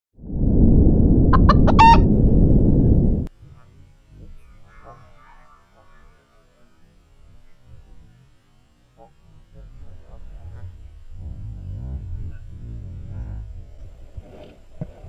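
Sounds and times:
loud low rumble: 0.2 - 3.3, 9.5 - 14.2
rooster crowing: 1.4 - 2.1.

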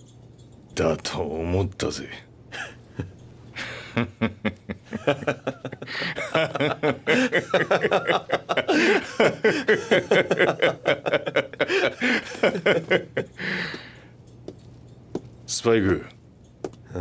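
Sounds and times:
men laughing: 2.5 - 14.0.

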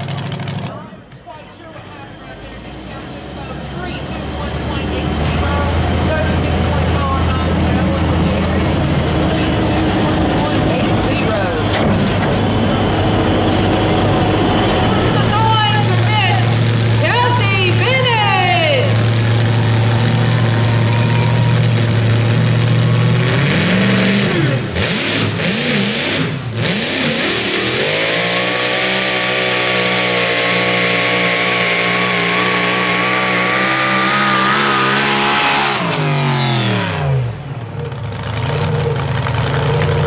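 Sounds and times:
vehicle engine revving: 2.4 - 40.0
rising whine: 10.0 - 17.1.

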